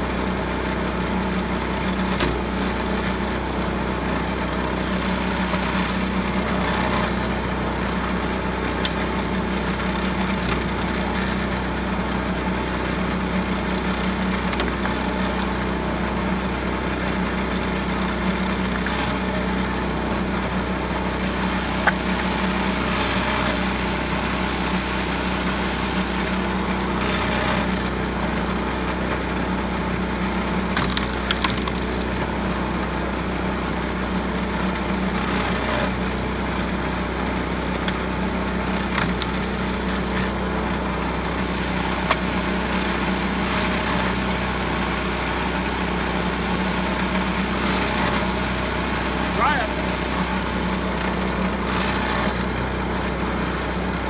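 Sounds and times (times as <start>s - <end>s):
small engine running: 0.0s - 54.0s
wood cracking and splintering: 14.2s - 15.6s, 30.6s - 32.8s, 38.6s - 40.4s.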